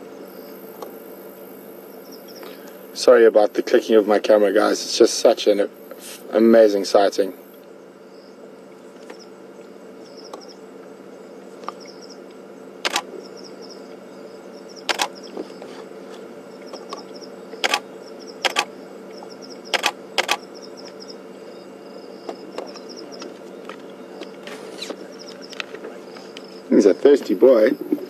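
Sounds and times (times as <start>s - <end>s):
crickets chirping: 0.0s - 28.0s
camera shutter clicking: 12.8s - 13.1s, 14.9s - 15.1s, 17.6s - 17.8s, 18.4s - 18.7s, 19.8s - 20.4s.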